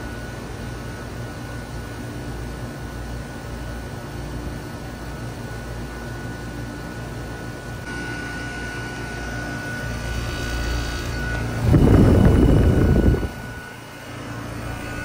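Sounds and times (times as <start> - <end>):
heat pump fan and compressor hum: 0.0 - 15.0
thin high whine: 7.8 - 15.0.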